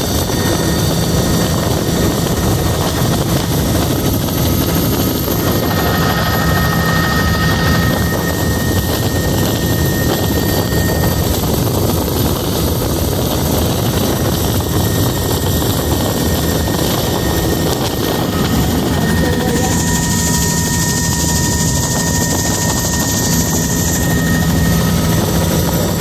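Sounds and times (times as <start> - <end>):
helicopter rotor and engine drone: 0.0 - 26.0
thin high whine: 15.9 - 26.0.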